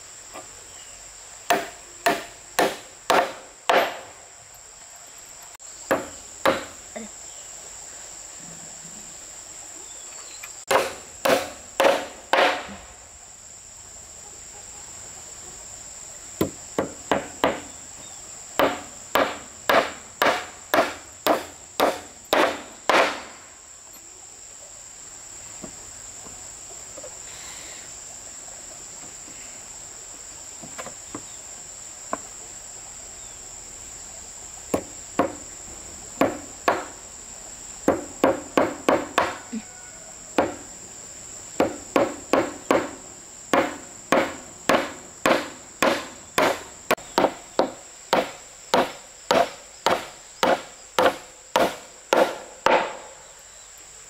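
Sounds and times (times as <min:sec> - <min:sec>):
high insect drone: 0:00.0 - 0:54.0
hand tool striking wood: 0:01.5 - 0:04.2, 0:05.9 - 0:06.8, 0:10.7 - 0:12.8, 0:16.4 - 0:17.7, 0:18.6 - 0:23.4, 0:34.7 - 0:35.4, 0:36.2 - 0:37.0, 0:37.9 - 0:39.4, 0:40.4 - 0:40.6, 0:41.6 - 0:53.2.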